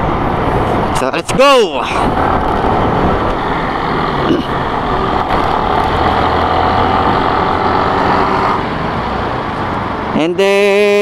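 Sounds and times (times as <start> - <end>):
road noise: 0.0 - 11.0
motorcycle engine running: 2.1 - 6.3.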